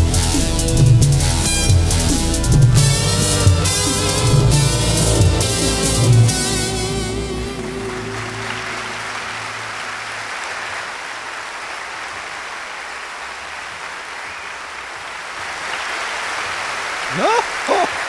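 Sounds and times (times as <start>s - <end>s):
band holding low note: 0.0s - 10.0s
audience applause: 3.3s - 18.0s.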